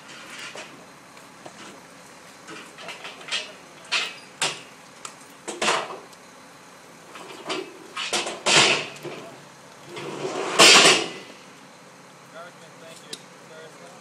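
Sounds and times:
knocks and clanks on truck tailgate: 7.3s - 9.3s, 10.0s - 11.2s.

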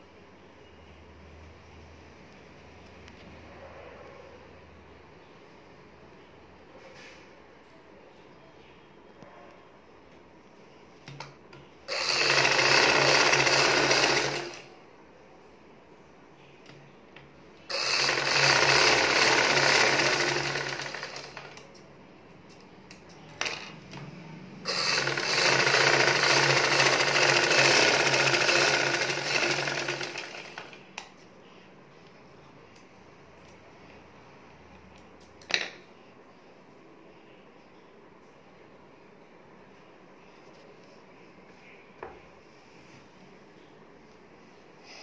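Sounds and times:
sewing machine stitching: 11.9s - 14.8s, 17.7s - 21.6s, 23.4s - 23.8s, 24.6s - 30.8s.

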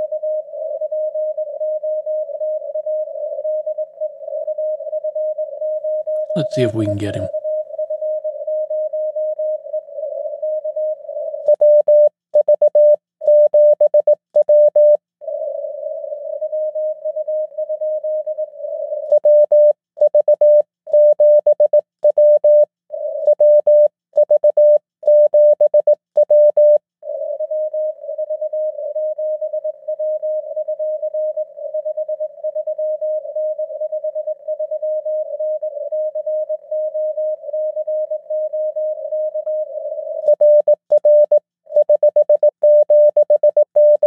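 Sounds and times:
hissy morse code signal: 6.3s - 7.3s, 40.3s - 44.0s
morse code sidetone keying: 40.3s - 44.0s.

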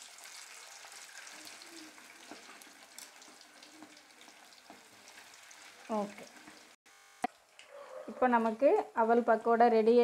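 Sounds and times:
batter deep-frying in oil: 0.0s - 6.8s.

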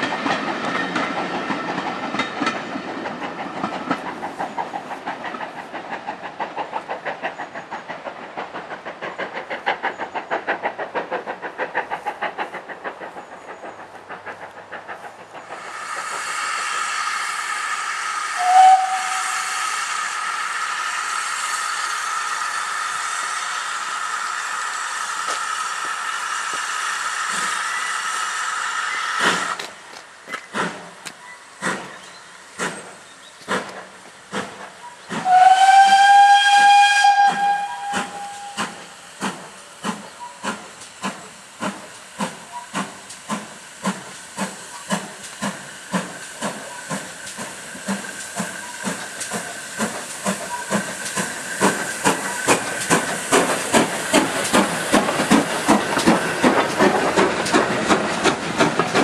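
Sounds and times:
steam locomotive hissing: 0.0s - 59.0s
train clattering past: 0.0s - 59.0s
locomotive toot: 18.4s - 19.2s, 35.2s - 38.6s
steam engine exhaust chuffs: 32.6s - 59.0s.

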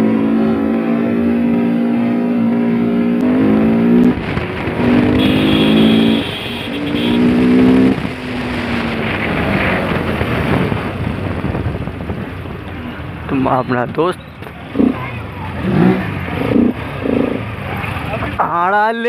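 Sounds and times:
motorcycle engine revving: 0.0s - 18.5s.

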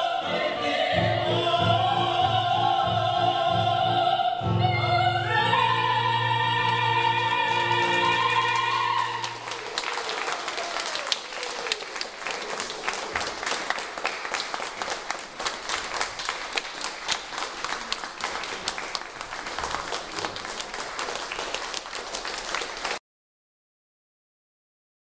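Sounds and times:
audience applauding: 7.2s - 23.0s.

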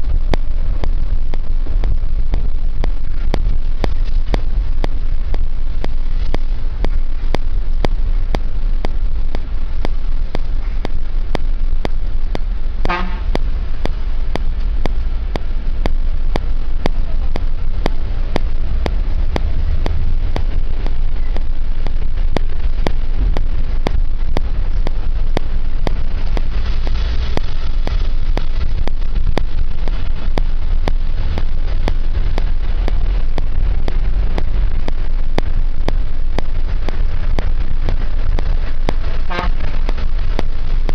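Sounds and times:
road and engine rumble: 0.0s - 40.9s
car horn toot: 12.9s - 13.3s, 39.3s - 39.7s.

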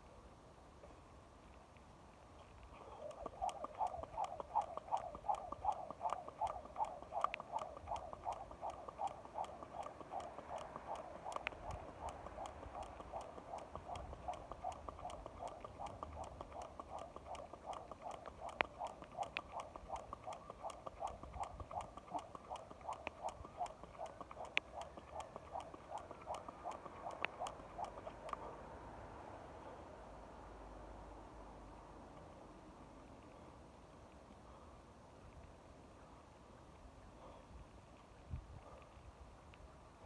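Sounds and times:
jump rope slapping pavement: 3.1s - 28.5s.

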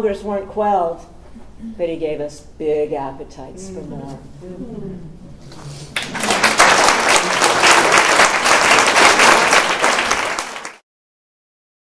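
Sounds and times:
audience applauding: 5.9s - 10.8s.

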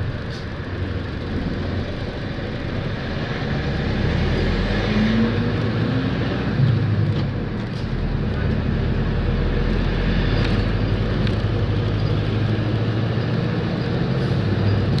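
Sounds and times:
road noise: 0.0s - 15.0s
vehicle engine: 0.0s - 15.0s.

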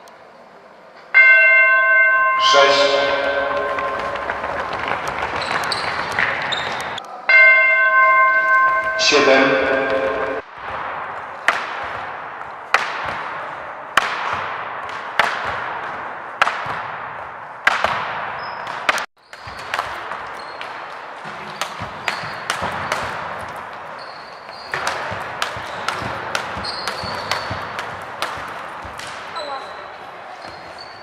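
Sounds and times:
knocks and bounces: 3.0s - 7.0s, 9.7s - 29.4s
shoes squeaking on floor: 3.2s - 7.0s, 18.4s - 27.9s, 29.3s - 31.0s.

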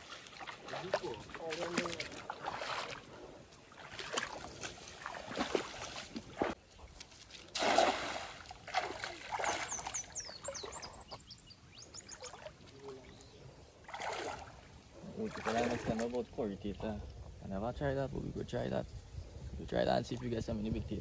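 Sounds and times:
water swishing and splashing: 0.0s - 11.4s, 12.0s - 17.0s.

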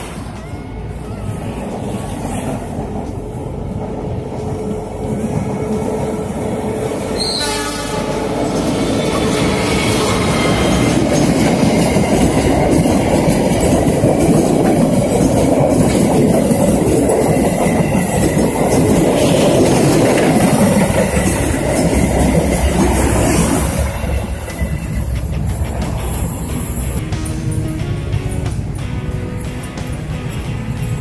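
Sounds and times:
train wheels clattering over rails: 1.6s - 31.0s.

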